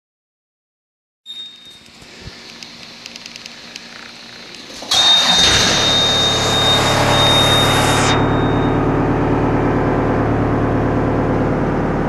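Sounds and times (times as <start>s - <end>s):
steady high-pitched tone: 1.3s - 10.8s
diesel engine starting and running: 2.0s - 12.0s.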